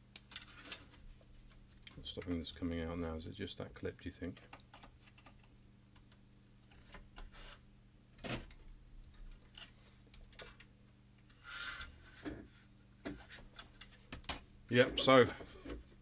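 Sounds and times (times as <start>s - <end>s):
short scrape: 11.4s - 12.1s.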